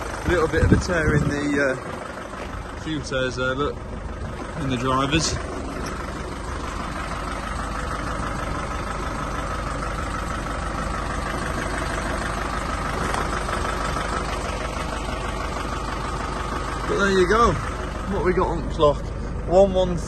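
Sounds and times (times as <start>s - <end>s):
van engine idling: 0.0s - 20.0s.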